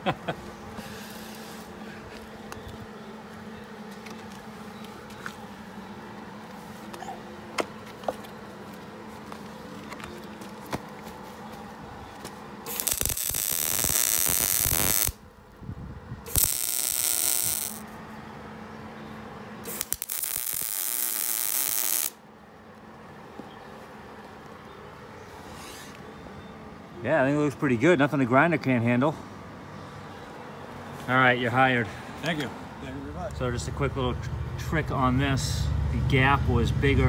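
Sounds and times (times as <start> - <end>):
steady low hum: 0.0 - 27.0
welder arc crackling: 12.6 - 15.2, 16.3 - 17.8, 19.6 - 22.2.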